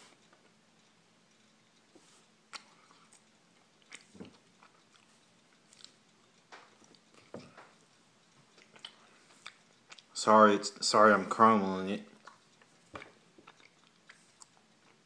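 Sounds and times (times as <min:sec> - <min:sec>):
cookie crunching: 0:12.1 - 0:15.0.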